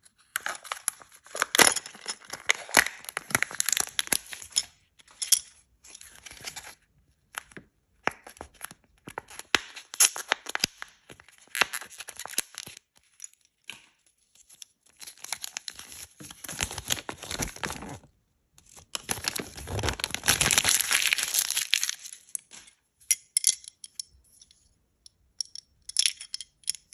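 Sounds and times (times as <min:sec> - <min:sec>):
paper wrapper crinkling: 0:00.2 - 0:04.6, 0:14.3 - 0:22.6.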